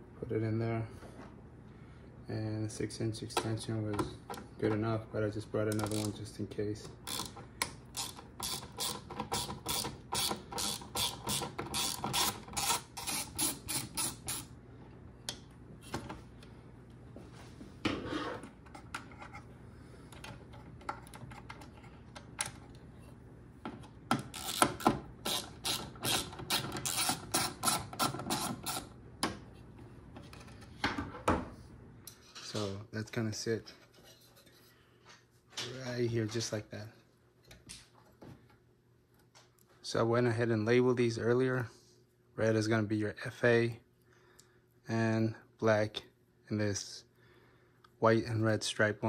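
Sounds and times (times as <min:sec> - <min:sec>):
ratchet clicking: 0:07.1 - 0:14.4, 0:24.4 - 0:27.8.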